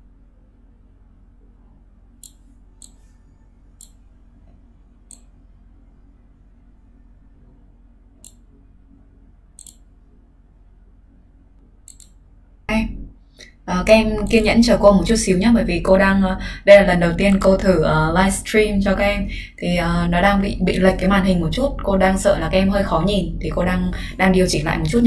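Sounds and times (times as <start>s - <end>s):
low steady hum: 0.0s - 25.0s
computer mouse clicking: 2.2s - 3.1s, 3.8s - 4.0s, 5.1s - 5.3s, 8.2s - 8.4s, 9.6s - 9.9s, 11.8s - 12.2s.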